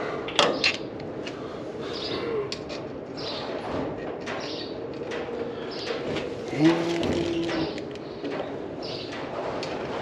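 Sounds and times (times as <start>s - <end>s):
bird cooing: 6.5s - 7.8s.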